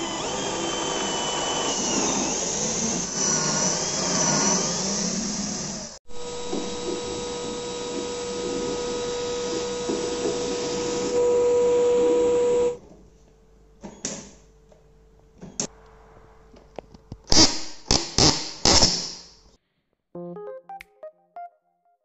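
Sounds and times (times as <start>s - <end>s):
small electric motor whining: 0.0s - 12.8s.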